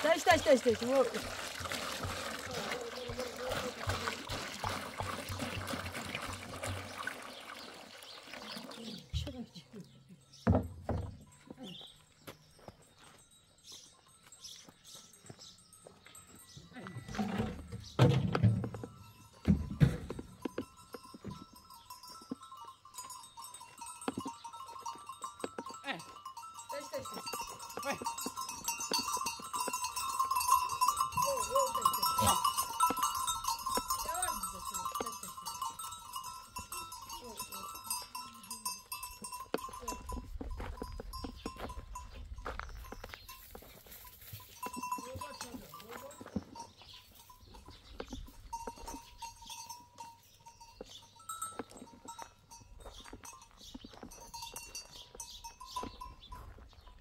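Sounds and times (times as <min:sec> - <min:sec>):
livestock bells clanking: 0:00.0 - 0:06.8, 0:08.8 - 0:57.0
knocks and clinks: 0:16.2 - 0:43.6.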